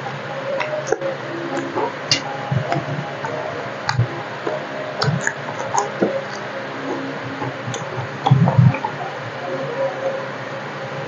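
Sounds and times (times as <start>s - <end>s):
person chewing food: 0.6s - 9.0s.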